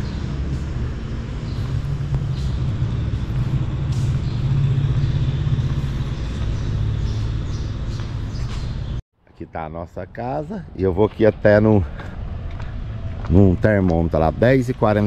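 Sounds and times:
steady low rumble: 0:00.0 - 0:08.0.

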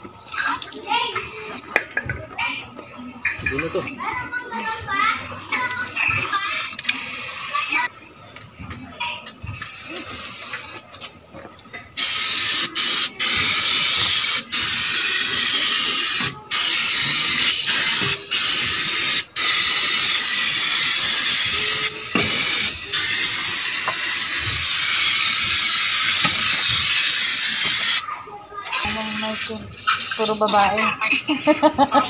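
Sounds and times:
aerosol can spraying: 0:12.0 - 0:28.0.

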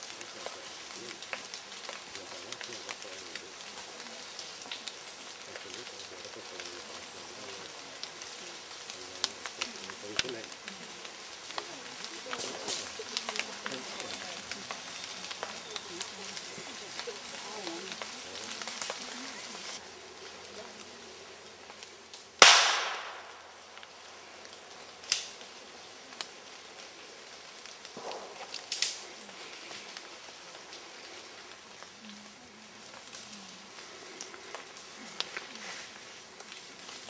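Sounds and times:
faint sharp cracks: 0:21.7 - 0:25.6, 0:27.5 - 0:31.9
loud gunshot with echo: 0:22.4 - 0:23.4.

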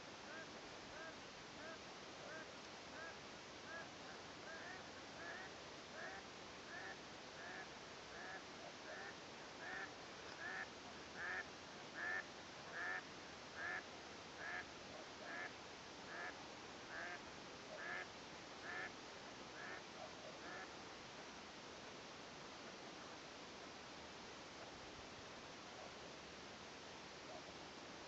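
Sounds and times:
waterfowl calling: 0:04.5 - 0:11.4, 0:12.0 - 0:13.0, 0:13.6 - 0:13.8, 0:14.4 - 0:14.6, 0:15.2 - 0:15.5, 0:16.1 - 0:17.2, 0:17.8 - 0:18.0, 0:18.6 - 0:18.9, 0:19.6 - 0:19.8, 0:20.4 - 0:20.7.

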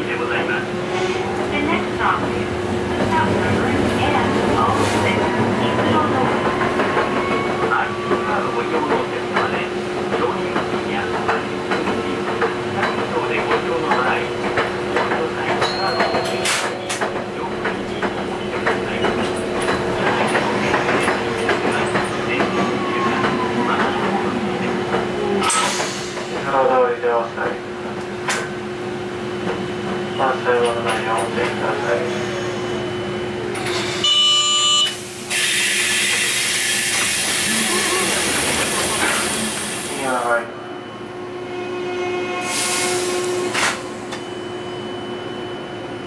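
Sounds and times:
tram humming: 0:00.0 - 0:46.0
wheels clacking on rails: 0:01.4 - 0:26.7
tram door buzzer: 0:34.0 - 0:38.5.

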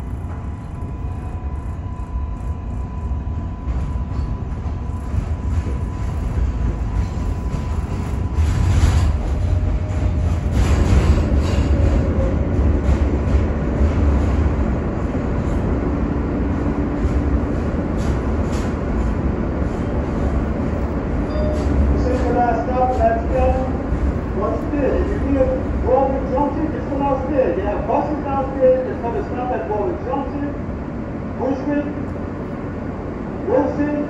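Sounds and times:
faint whine: 0:00.0 - 0:08.6
train rumble: 0:00.0 - 0:34.0.

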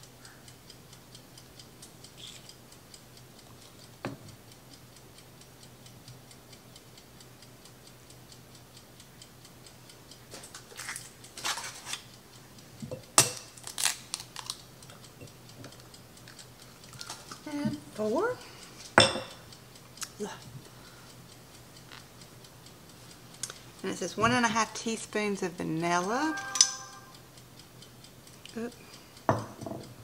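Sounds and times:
faint steady ticking: 0:00.0 - 0:30.0
crackle of eggshell pulling apart: 0:13.4 - 0:14.6.

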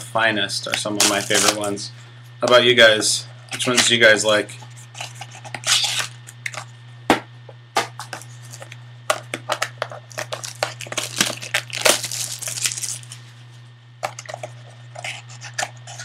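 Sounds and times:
cards being handled: 0:00.7 - 0:01.7, 0:07.8 - 0:13.2
foil wrapper crinkling: 0:00.9 - 0:01.7, 0:04.8 - 0:06.6, 0:07.9 - 0:13.4.

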